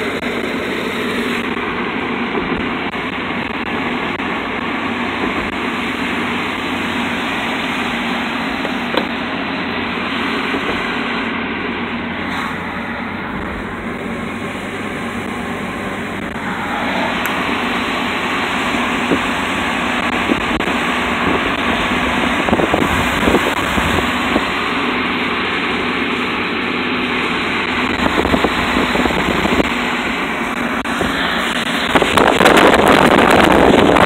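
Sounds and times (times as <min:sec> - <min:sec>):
low engine hum: 0:00.0 - 0:34.0
tyre hiss on wet road: 0:27.2 - 0:33.7.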